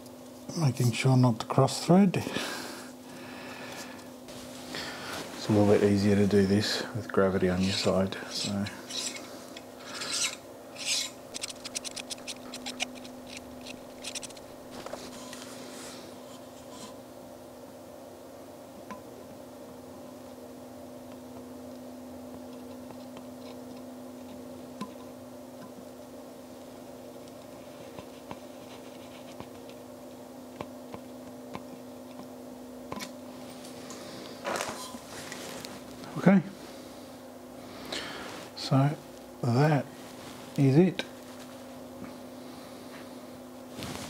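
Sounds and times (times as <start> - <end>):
threads rasping: 7.4 - 15.4
metal wrench clicking and scraping: 8.9 - 9.2, 9.9 - 14.4.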